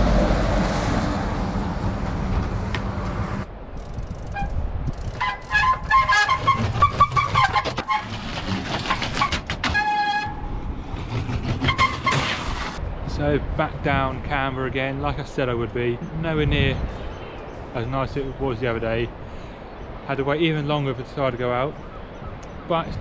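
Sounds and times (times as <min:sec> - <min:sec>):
wind on camera: 0:00.6 - 0:07.0, 0:12.4 - 0:20.0, 0:21.7 - 0:23.0
bike brake squeals: 0:03.8 - 0:08.2.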